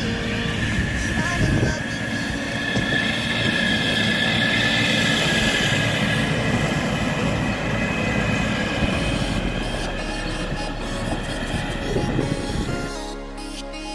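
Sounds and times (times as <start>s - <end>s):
heavy machinery rumbling: 0.0s - 13.1s
high even whine: 0.0s - 13.9s.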